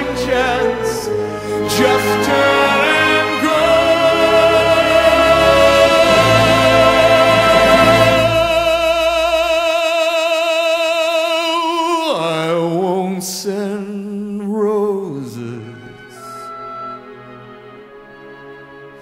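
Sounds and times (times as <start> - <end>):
musical accompaniment: 0.0 - 10.3, 15.1 - 19.0
person singing a ballad: 0.0 - 16.4.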